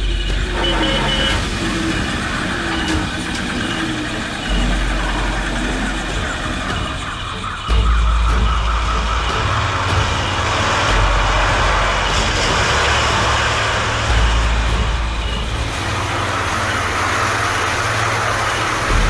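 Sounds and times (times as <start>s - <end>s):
deep hum: 0.0s - 19.0s
rushing road noise: 0.0s - 19.0s
vehicle engines running: 0.0s - 19.0s.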